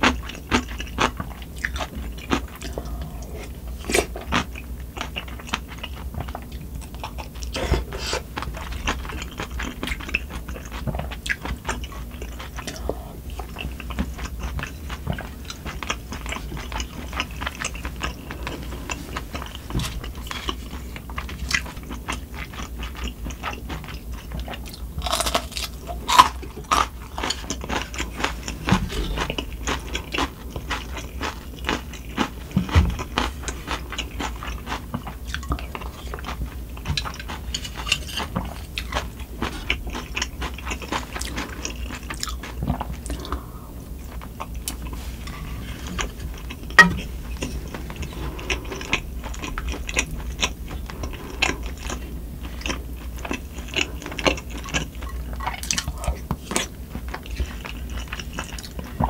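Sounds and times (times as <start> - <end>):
food crunching: 0.0 - 59.0
low steady hum: 0.0 - 59.0
wet chewing and biting: 13.4 - 43.4.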